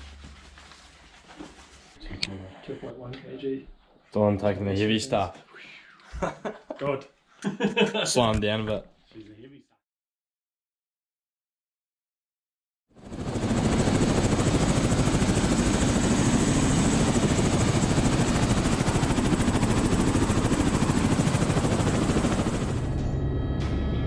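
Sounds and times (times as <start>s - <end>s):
helicopter rotor chopping: 13.0s - 23.0s
helicopter engine noise: 13.0s - 24.0s.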